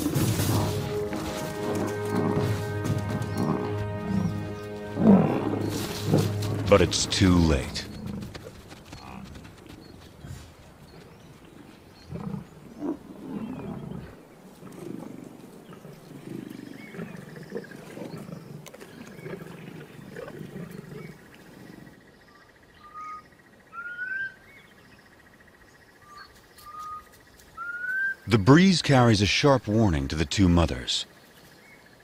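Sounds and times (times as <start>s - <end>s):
lions growling: 0.0s - 21.9s
whistled bird calls: 22.3s - 24.7s, 26.0s - 28.3s.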